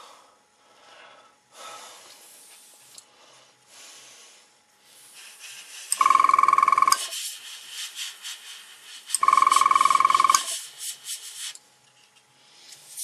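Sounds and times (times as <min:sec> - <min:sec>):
airbrush spraying hiss: 0:02.2 - 0:02.9, 0:04.8 - 0:06.0, 0:07.0 - 0:09.2, 0:10.4 - 0:11.6.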